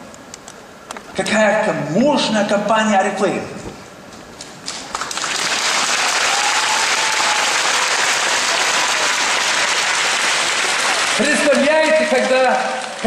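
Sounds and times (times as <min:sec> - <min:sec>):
large audience applauding: 0:04.7 - 0:13.0.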